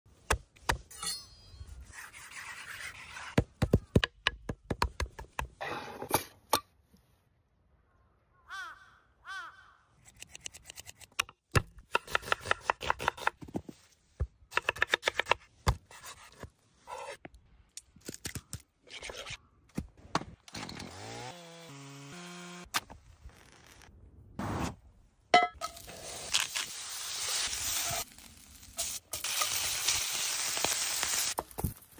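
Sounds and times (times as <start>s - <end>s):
chainsaw running: 20.5s - 22.7s.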